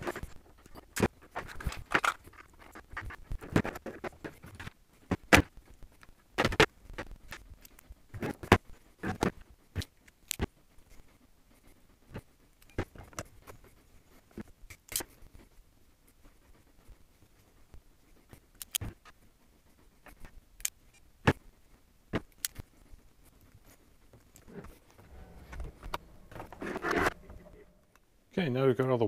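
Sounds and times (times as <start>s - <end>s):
wire and connectors rustling: 0.0s - 10.5s, 22.2s - 28.0s
sharp clicks and taps of tools: 18.6s - 19.0s, 22.2s - 22.6s.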